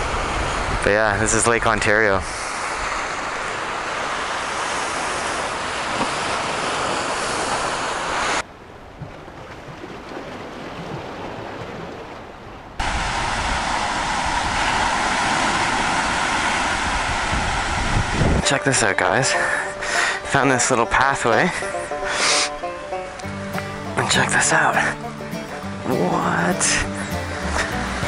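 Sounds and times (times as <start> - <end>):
waves washing on rocky shore: 0.0 - 8.4, 9.5 - 20.3
wind gusting on microphone: 0.0 - 18.8.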